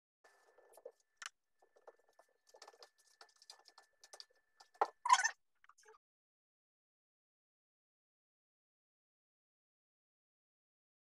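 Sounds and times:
scratchy clicks and rustles: 0.3 - 5.0.

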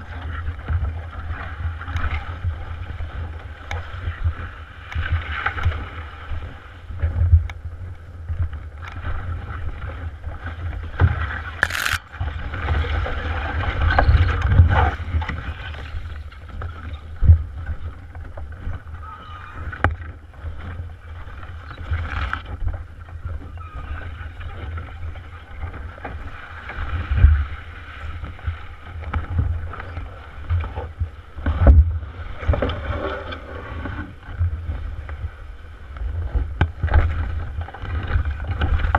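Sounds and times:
hollow rumbling of canoe hull: 0.0 - 38.9
sharp click: 11.6 - 12.0.

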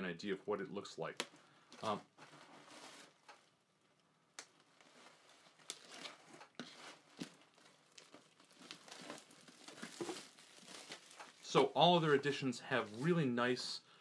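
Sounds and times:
plastic wrapping crinkling: 4.4 - 13.1.

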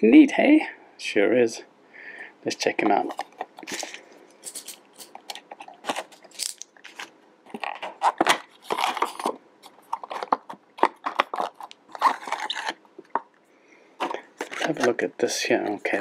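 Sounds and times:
plastic packaging crinkling: 3.0 - 13.2, 14.0 - 15.0.

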